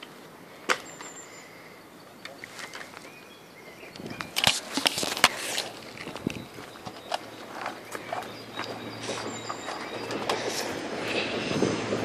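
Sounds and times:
high bird chirp: 0:06.2 - 0:10.8.

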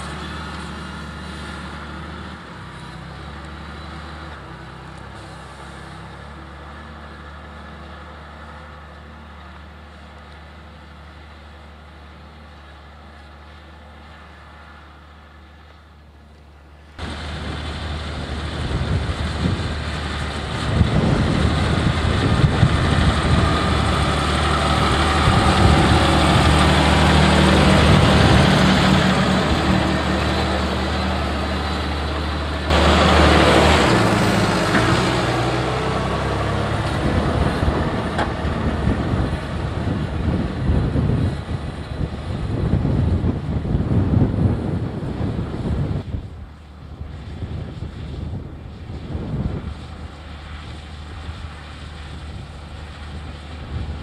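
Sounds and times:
tractor diesel engine running: 0:00.0 - 0:54.0
loud rush of noise: 0:17.0 - 0:46.6.

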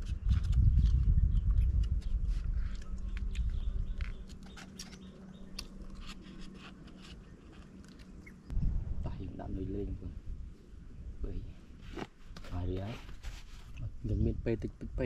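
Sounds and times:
low rumble: 0:08.4 - 0:11.7.

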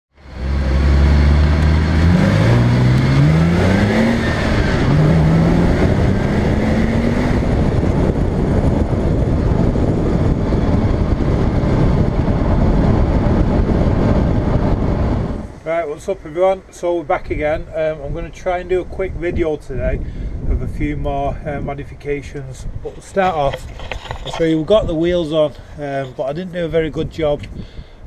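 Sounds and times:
wind and tyre noise: 0:00.1 - 0:28.0
car engine accelerating: 0:00.2 - 0:15.6.

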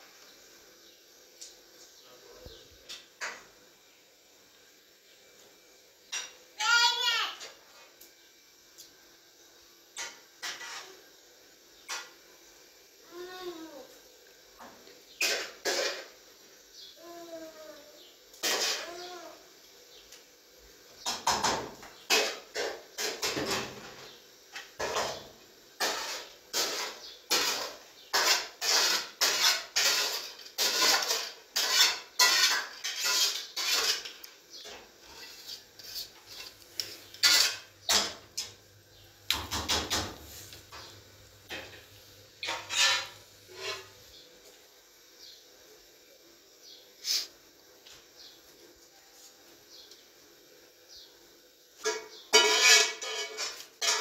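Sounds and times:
metal spoon scraping steel pots: 0:25.8 - 0:34.3, 0:35.0 - 0:38.2, 0:42.4 - 0:43.9, 0:51.8 - 0:54.0.

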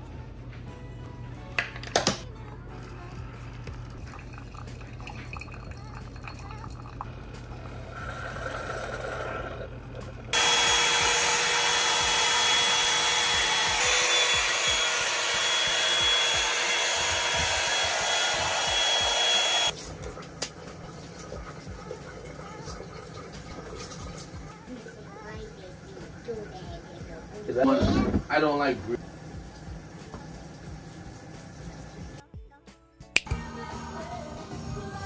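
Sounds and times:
coffee pouring into a mug: 0:03.6 - 0:10.3
hair dryer whining: 0:10.3 - 0:19.8.

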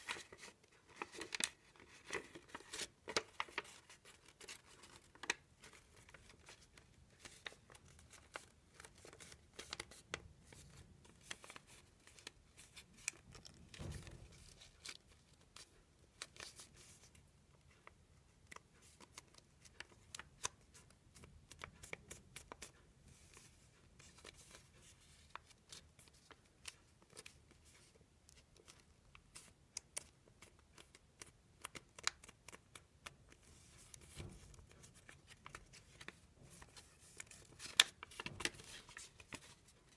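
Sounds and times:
paper rustle: 0:00.0 - 0:17.2, 0:33.3 - 0:39.9
paper crinkling being folded: 0:00.0 - 0:39.9.

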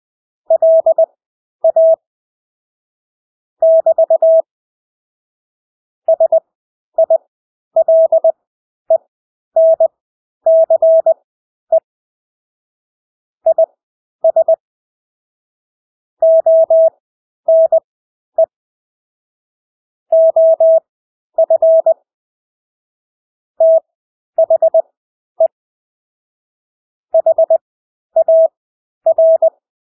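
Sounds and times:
morse code beeps: 0:00.5 - 0:02.0, 0:03.6 - 0:04.5, 0:06.1 - 0:06.4, 0:07.8 - 0:08.3, 0:09.6 - 0:09.9, 0:10.5 - 0:11.2, 0:13.5 - 0:14.6, 0:16.2 - 0:16.9, 0:17.5 - 0:17.8, 0:20.1 - 0:20.8, 0:21.4 - 0:22.0, 0:23.6 - 0:24.8, 0:27.2 - 0:27.6, 0:28.2 - 0:28.5, 0:29.1 - 0:29.5.

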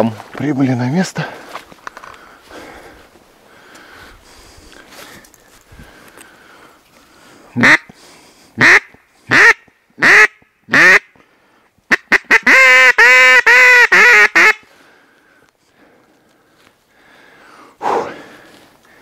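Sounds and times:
duck call quacking: 0:07.6 - 0:07.9, 0:08.6 - 0:11.1, 0:11.9 - 0:14.6.

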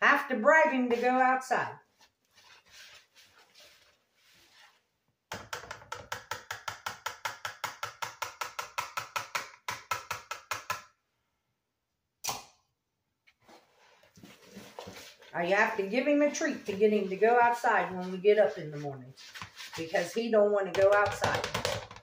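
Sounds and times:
utensil stirring in plastic bowl: 0:14.1 - 0:22.0.

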